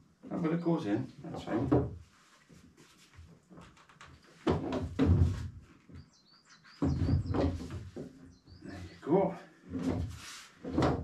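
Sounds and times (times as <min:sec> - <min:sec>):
small bird chirping: 0:05.9 - 0:09.0.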